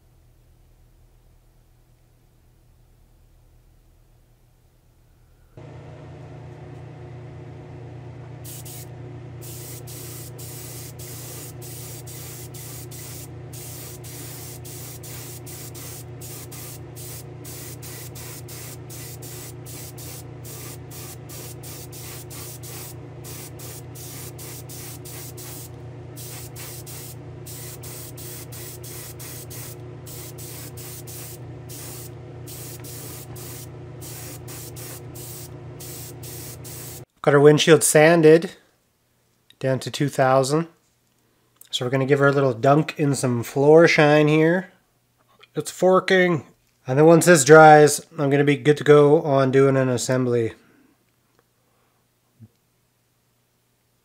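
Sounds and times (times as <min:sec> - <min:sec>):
steady low hum: 0:00.0 - 0:37.1
airbrush spraying in hissing bursts: 0:08.4 - 0:37.1.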